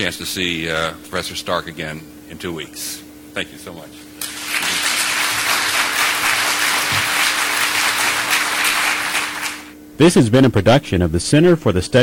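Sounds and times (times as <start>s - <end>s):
audience applauding: 4.2s - 9.8s.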